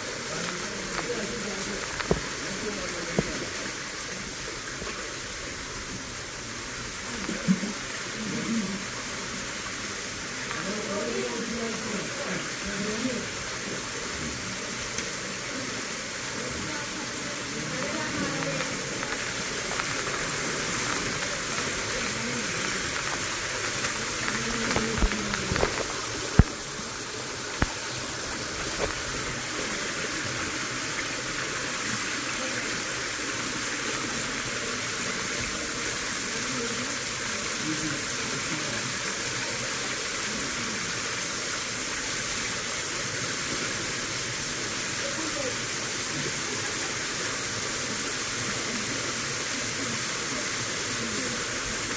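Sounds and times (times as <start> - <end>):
indistinct voices: 0.0 - 42.4
stream rushing over rocks: 0.0 - 51.9.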